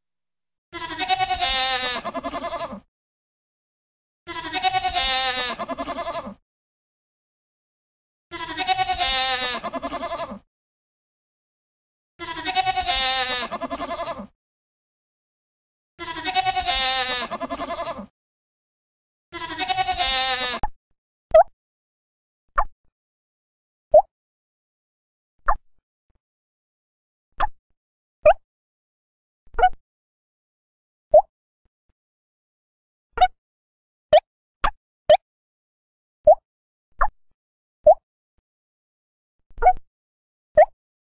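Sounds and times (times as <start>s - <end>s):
goat bleating: 0.8s - 2.8s, 4.3s - 6.4s, 8.3s - 10.4s, 12.2s - 14.3s, 16.0s - 18.1s, 19.4s - 20.6s.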